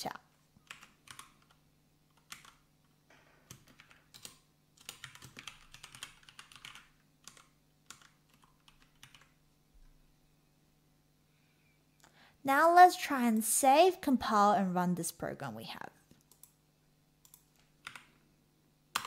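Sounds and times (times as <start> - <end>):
typing on a keyboard: 0.6 - 2.7, 3.4 - 9.4, 17.2 - 18.2.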